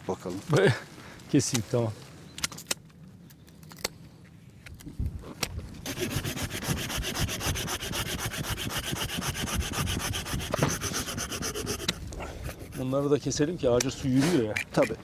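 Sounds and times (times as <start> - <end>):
hand saw cutting wood: 5.8 - 13.2.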